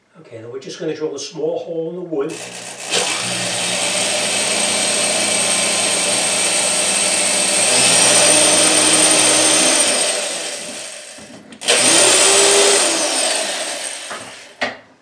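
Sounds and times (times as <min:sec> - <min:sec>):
electric drill boring wood: 0:02.3 - 0:14.7.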